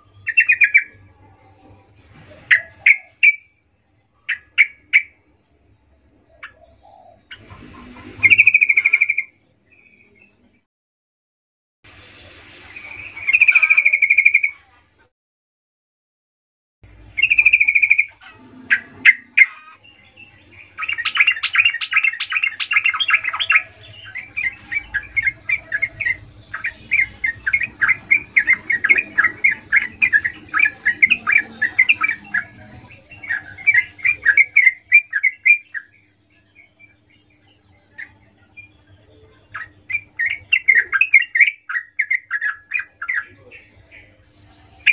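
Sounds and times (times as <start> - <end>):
bird chattering: 0.0 - 1.6, 2.4 - 3.6, 4.2 - 5.2, 6.2 - 10.0, 17.0 - 44.9
bird singing trills: 0.0 - 1.8, 2.4 - 10.6, 16.9 - 44.9.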